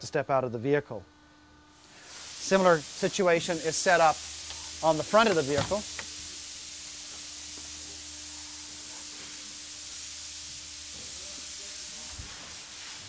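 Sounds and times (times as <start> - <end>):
steady hiss: 1.7 - 13.0.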